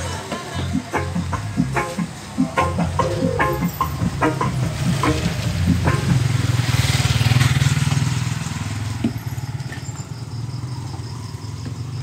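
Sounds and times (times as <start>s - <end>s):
deep bass rumble from speakers: 0.0s - 6.5s.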